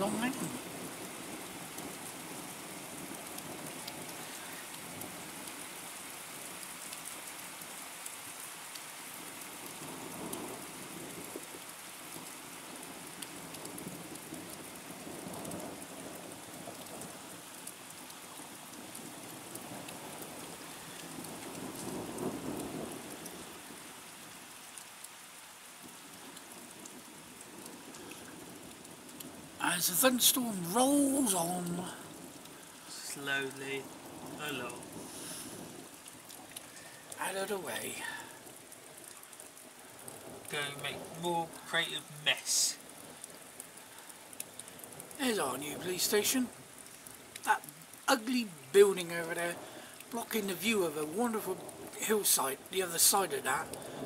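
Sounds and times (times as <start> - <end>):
rain on wet tarmac: 0.0 - 54.0
distant thunder rumbling: 13.0 - 23.9, 53.4 - 54.0.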